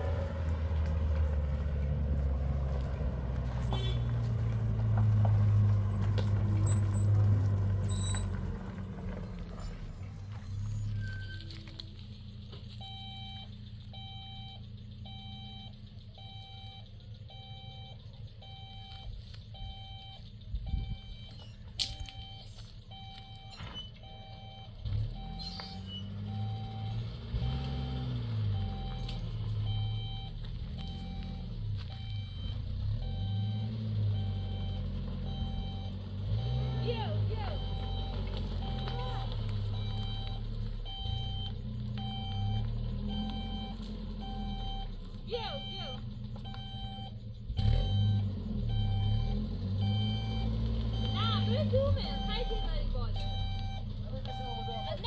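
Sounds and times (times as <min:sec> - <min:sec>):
heavy vehicle engine running: 0:00.0 - 0:55.0
reversing alarm beeping: 0:12.7 - 0:55.0.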